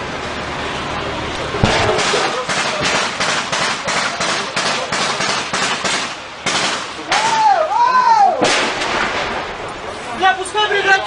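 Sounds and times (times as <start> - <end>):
gunshots: 1.6 - 7.4, 8.4 - 9.6.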